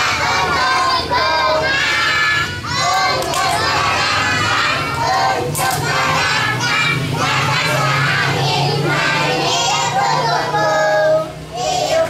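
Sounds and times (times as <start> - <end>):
young children singing loudly: 0.0 - 12.0.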